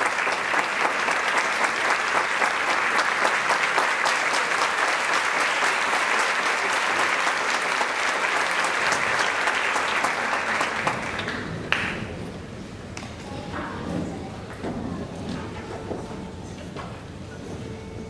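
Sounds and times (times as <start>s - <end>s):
audience applause: 0.0s - 12.2s.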